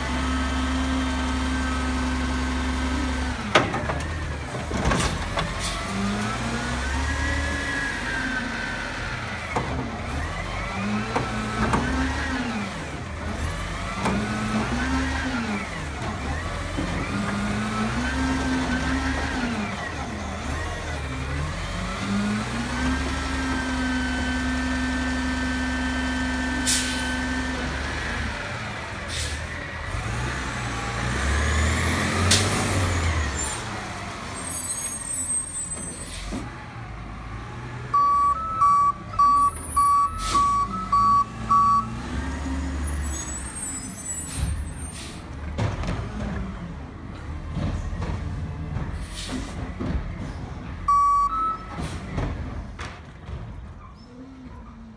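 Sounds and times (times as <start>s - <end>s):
garbage truck diesel engine revving: 0.0s - 34.5s, 36.1s - 38.0s, 38.6s - 50.9s
reversing beeper: 37.9s - 42.0s, 50.9s - 51.8s.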